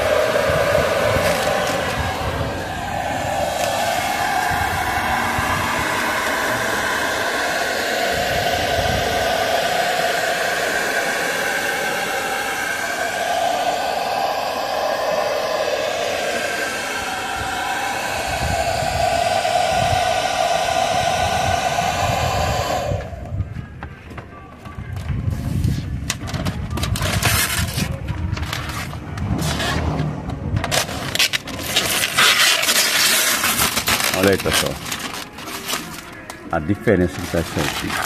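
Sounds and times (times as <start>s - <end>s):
hair dryer blowing: 0.0s - 23.5s, 37.1s - 38.0s.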